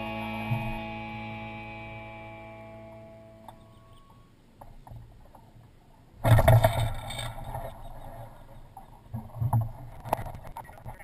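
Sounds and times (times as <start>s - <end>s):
sail flapping: 4.6s - 11.0s.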